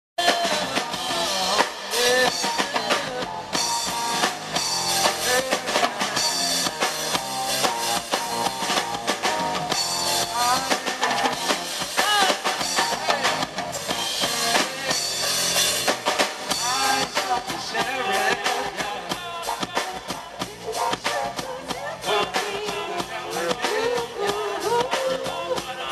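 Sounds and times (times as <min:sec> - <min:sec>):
man singing: 0:00.2 - 0:04.2, 0:04.9 - 0:06.9, 0:10.1 - 0:11.4, 0:12.0 - 0:13.5, 0:14.2 - 0:15.6, 0:16.5 - 0:25.9
drum kit: 0:00.2 - 0:25.9
electric bass: 0:00.2 - 0:25.9
electric guitar: 0:00.2 - 0:25.9.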